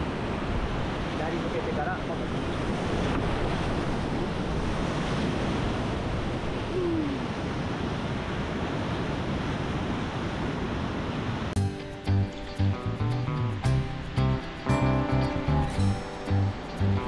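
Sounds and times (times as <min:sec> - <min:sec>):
wind buffeting microphone: 0:00.0 - 0:11.5.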